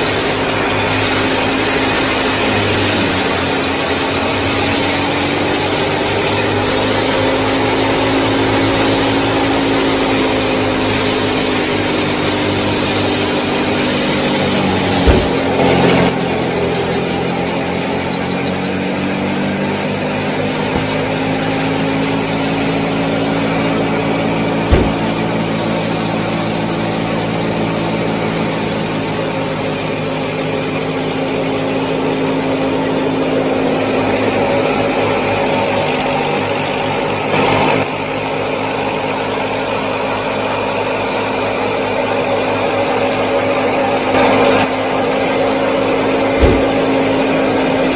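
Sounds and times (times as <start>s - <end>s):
sharp knocks: 0.0s - 16.2s, 20.6s - 26.9s, 46.2s - 47.7s
model thresher motor whine: 0.0s - 47.9s.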